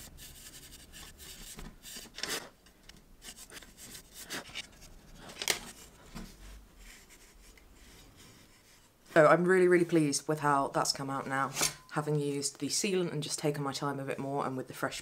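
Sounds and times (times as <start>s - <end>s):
steel wool scratching metal: 0.0s - 2.5s.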